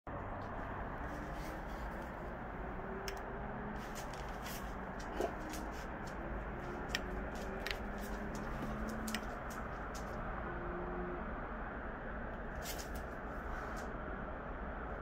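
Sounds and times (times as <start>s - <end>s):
dog claws clicking on floor: 3.9s - 10.2s.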